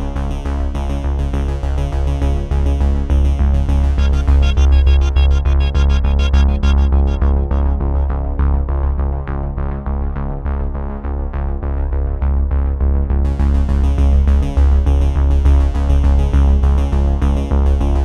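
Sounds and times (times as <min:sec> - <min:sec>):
electronic synthesizer music: 0:03.7 - 0:08.8.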